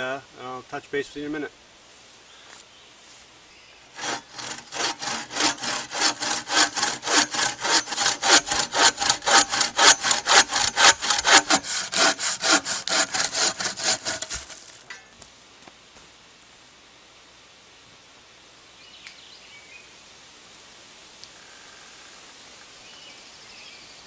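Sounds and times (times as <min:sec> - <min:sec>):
bow saw cutting log: 0:03.9 - 0:14.8.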